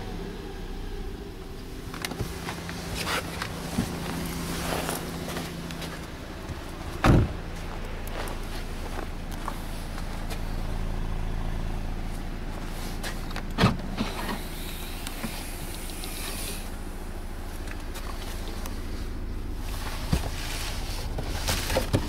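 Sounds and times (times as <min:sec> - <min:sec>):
car engine idling: 0:00.0 - 0:22.0
car boot lid clunk: 0:07.0 - 0:07.4.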